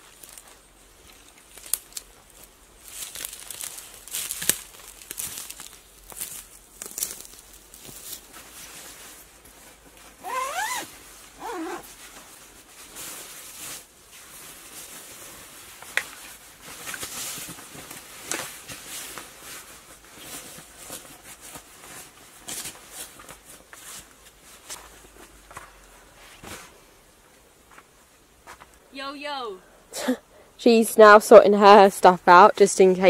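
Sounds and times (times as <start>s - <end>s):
sleeping bags rustling: 0.0s - 29.4s
zip rasps: 10.2s - 11.9s.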